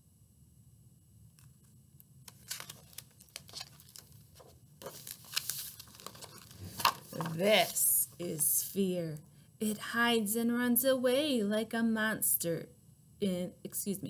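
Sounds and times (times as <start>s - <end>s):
paper page crackling: 1.6s - 8.8s
page rustling: 2.3s - 8.8s.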